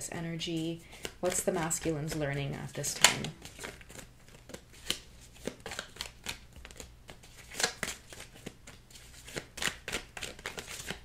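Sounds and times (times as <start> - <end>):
cards being shuffled by hand: 0.5 - 11.0.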